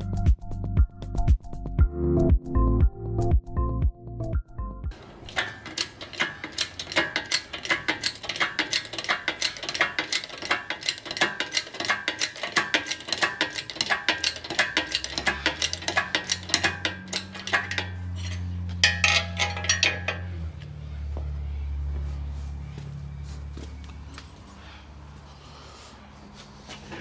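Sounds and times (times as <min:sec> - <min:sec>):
metallic clicking and clinking: 0:04.9 - 0:20.4.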